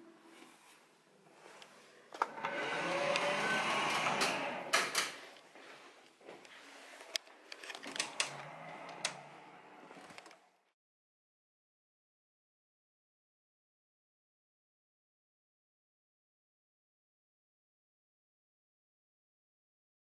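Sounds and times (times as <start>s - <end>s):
footsteps: 4.9s - 9.0s.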